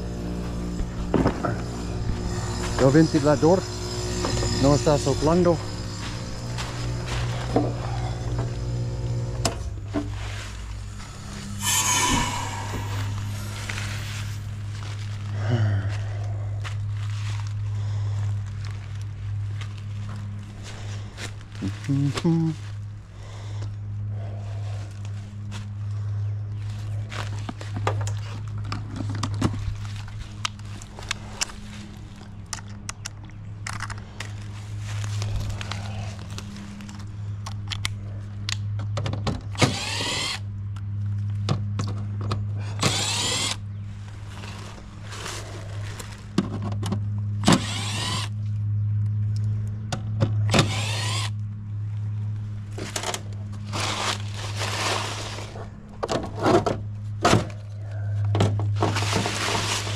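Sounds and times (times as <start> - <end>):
cordless driver whining: 0.0 - 9.9, 39.5 - 40.5, 42.6 - 43.6, 47.4 - 48.4, 50.4 - 51.4
heat pump humming: 0.0 - 32.3, 38.9 - 49.2, 49.9 - 59.9.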